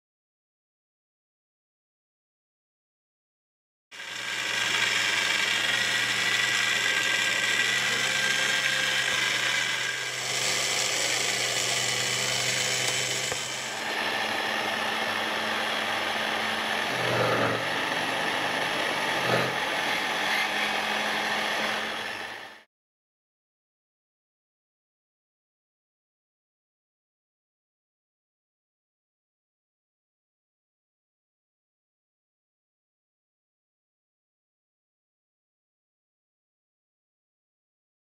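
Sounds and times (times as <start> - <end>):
drill bit cutting plastic: 4.0 - 22.7
drill press motor hum: 4.0 - 22.7.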